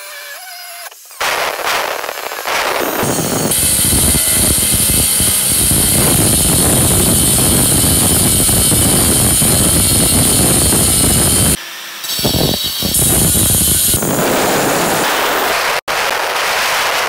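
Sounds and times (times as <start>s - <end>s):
angle grinder cutting metal: 2.5s - 15.8s.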